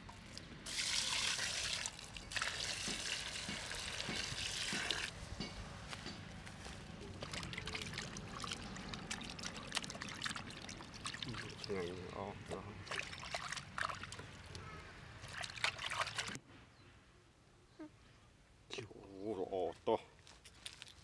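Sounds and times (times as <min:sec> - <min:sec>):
water pouring into metal bowl: 0:00.7 - 0:05.1, 0:07.2 - 0:11.9
hands splashing in water: 0:07.2 - 0:11.7, 0:15.2 - 0:16.4.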